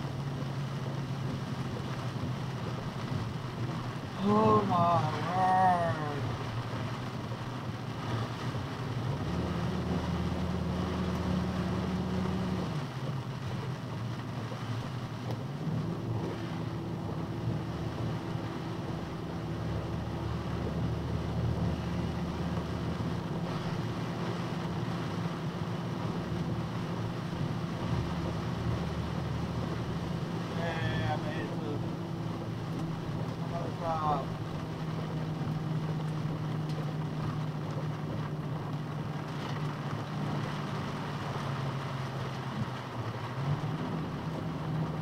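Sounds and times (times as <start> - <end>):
rain hiss and tyre spray: 0.0 - 45.0
truck engine and road drone: 0.0 - 45.0.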